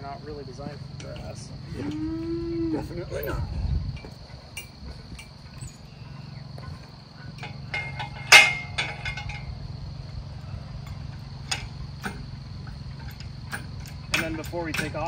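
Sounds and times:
high insect buzz: 0.0 - 7.7
steady low hum: 0.0 - 15.0
metallic clank of engine hoist: 6.6 - 9.6, 10.8 - 15.0.

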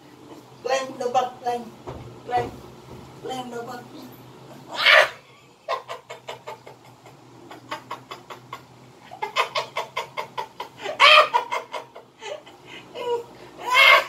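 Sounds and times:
man laughing: 5.4 - 14.0.

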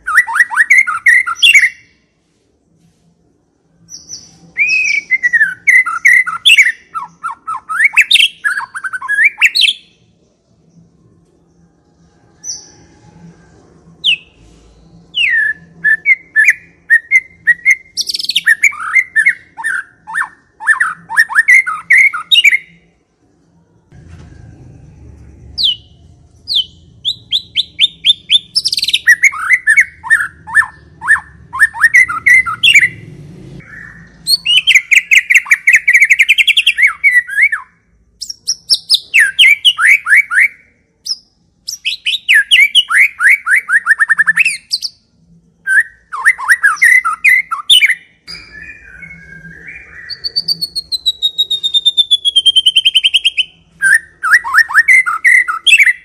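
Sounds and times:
bird singing trills: 0.0 - 2.0, 3.7 - 22.9, 24.6 - 56.0
long falling bird whistle: 45.7 - 56.0.

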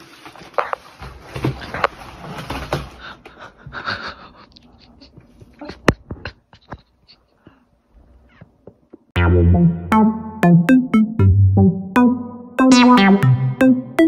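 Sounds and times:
plastic snack bag rustling: 0.0 - 3.0.

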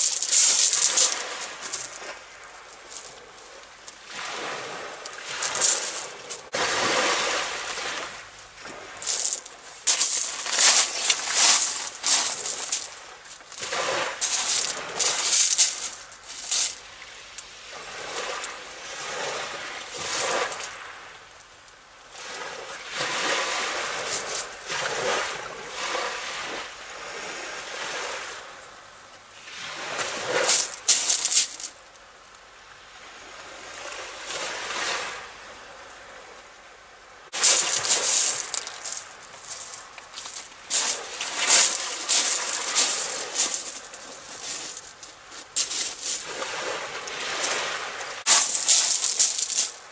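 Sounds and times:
close rustling: 0.0 - 2.0, 9.0 - 13.6
small waves washing on shore: 0.0 - 36.5, 37.1 - 49.9.

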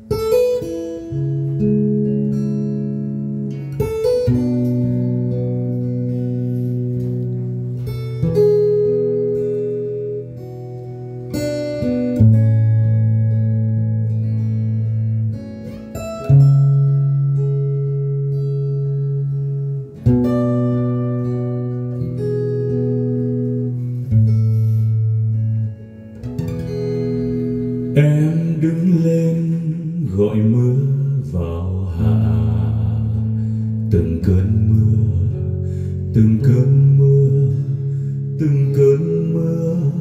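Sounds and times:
acoustic guitar music: 0.0 - 40.0.

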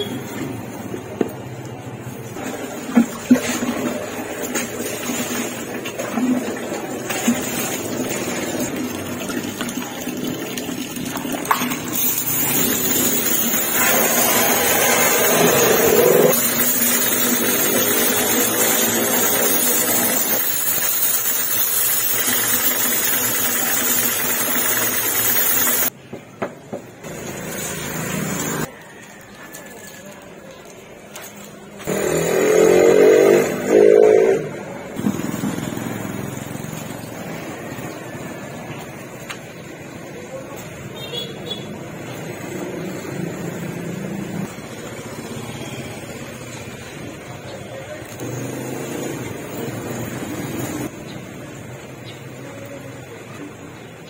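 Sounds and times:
noisy washing: 0.0 - 25.9, 27.0 - 28.8, 30.7 - 41.0, 41.7 - 52.0
water pump running: 2.0 - 25.9, 27.0 - 29.2, 34.7 - 40.2
hose pouring water into basin: 2.2 - 25.9, 27.1 - 30.1.

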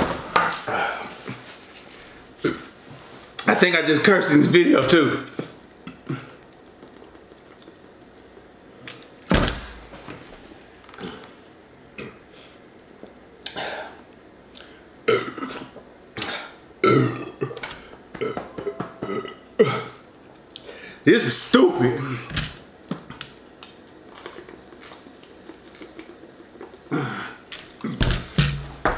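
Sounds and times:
man burping: 2.4 - 2.7, 15.1 - 20.0.

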